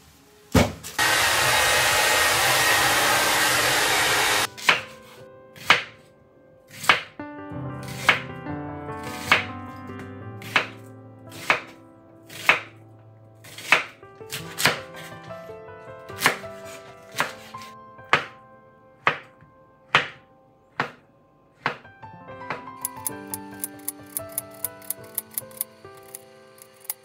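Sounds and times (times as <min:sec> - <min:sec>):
soft background music: 0:04.4 - 0:27.0
knife chopping on wooden board: 0:06.7 - 0:07.1, 0:12.3 - 0:12.7, 0:13.4 - 0:14.8, 0:20.8 - 0:21.0.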